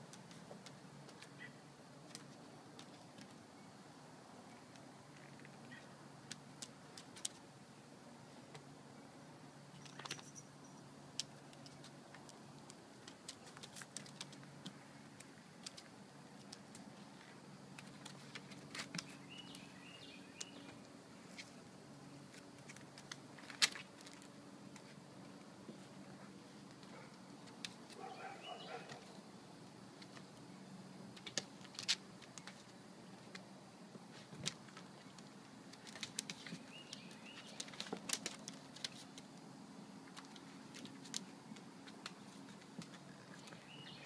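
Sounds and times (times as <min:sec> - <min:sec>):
claws and paws on deck boards: 0:00.0 - 0:03.7, 0:04.3 - 0:08.8, 0:09.6 - 0:44.0
faint chirp: 0:28.0 - 0:29.1.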